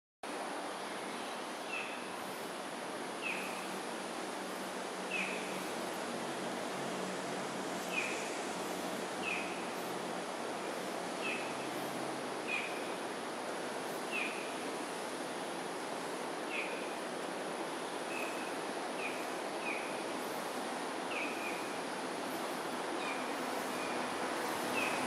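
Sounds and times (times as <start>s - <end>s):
outdoor background hiss: 0.2s - 25.0s.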